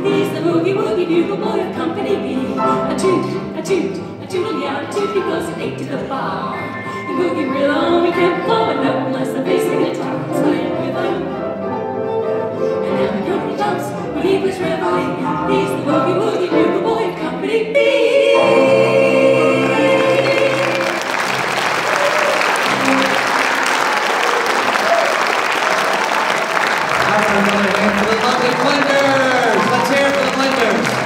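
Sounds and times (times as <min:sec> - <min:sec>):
piano violin and double bass: 0:00.0 - 0:17.6, 0:18.4 - 0:25.0
women singing in harmony: 0:00.0 - 0:21.2
audience applause: 0:20.0 - 0:31.0.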